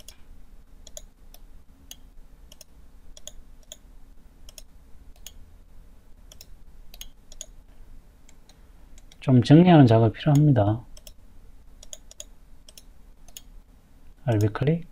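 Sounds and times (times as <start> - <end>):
computer mouse clicking: 0.0 - 0.2, 0.8 - 5.4, 6.3 - 7.6, 8.3 - 9.2, 10.3 - 11.2, 11.8 - 13.5, 14.3 - 14.6
faint low hum: 0.0 - 14.9.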